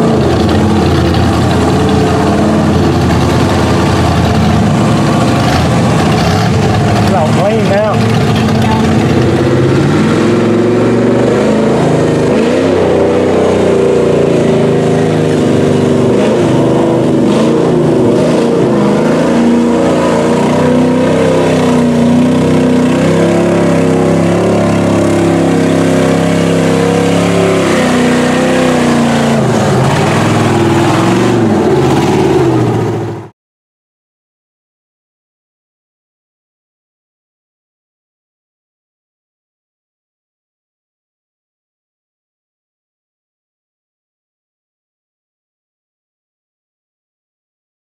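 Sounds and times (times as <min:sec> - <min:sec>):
truck engines revving: 0:00.0 - 0:33.3.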